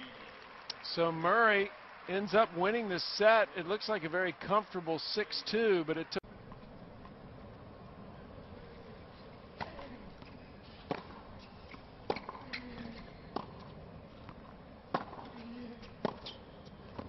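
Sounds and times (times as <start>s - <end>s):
stadium crowd hum: 0.0s - 17.0s
tennis ball hit by rackets: 9.6s - 13.7s, 14.3s - 17.0s.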